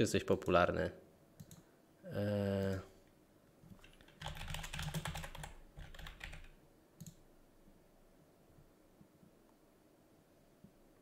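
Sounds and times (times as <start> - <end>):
computer keyboard typing: 1.4 - 1.6, 3.7 - 7.2
short voiced hum: 2.1 - 2.9.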